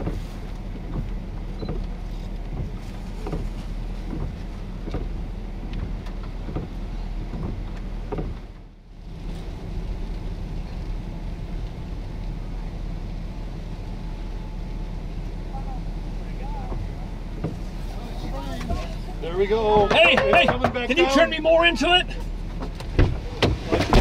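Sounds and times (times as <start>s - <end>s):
vehicle engine humming: 0.0s - 24.0s.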